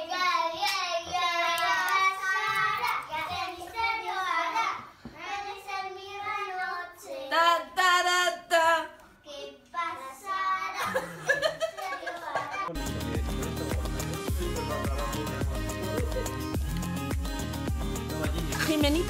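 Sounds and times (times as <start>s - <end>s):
young children singing: 0.0s - 7.8s.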